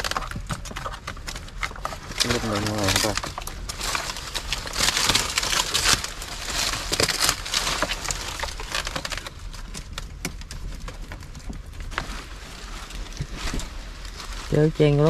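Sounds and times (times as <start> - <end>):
dry plant debris crackling: 0.0 - 15.0.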